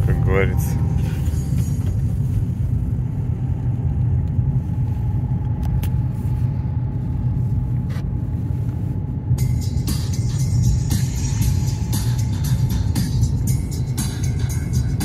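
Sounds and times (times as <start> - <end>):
road and tyre noise in car cabin: 0.0 - 15.0.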